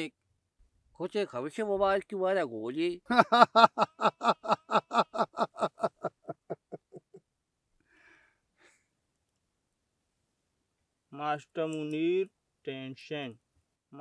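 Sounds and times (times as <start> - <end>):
man laughing: 3.1 - 7.2
faint breaths: 7.8 - 9.0.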